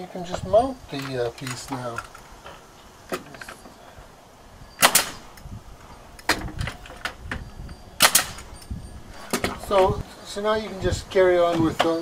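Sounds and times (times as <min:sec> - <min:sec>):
nail gun shots: 0:04.8 - 0:05.3, 0:08.0 - 0:08.5.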